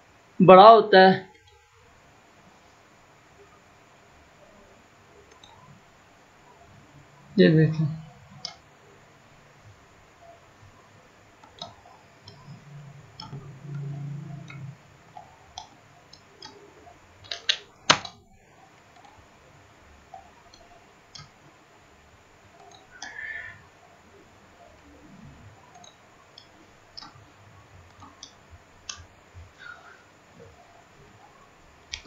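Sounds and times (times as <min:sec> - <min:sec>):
computer mouse clicks: 0:05.2 - 0:05.8, 0:13.2 - 0:18.2, 0:20.1 - 0:21.4, 0:22.5 - 0:23.6, 0:25.7 - 0:27.2, 0:27.9 - 0:29.1.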